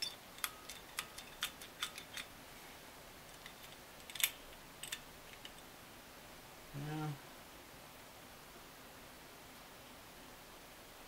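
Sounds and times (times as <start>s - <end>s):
small plastic parts clicking: 0.0s - 2.3s.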